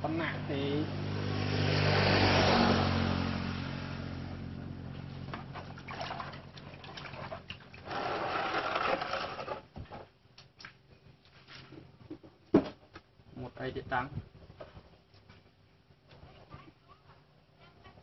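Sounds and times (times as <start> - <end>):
water sloshing in plastic basin: 4.9 - 12.8.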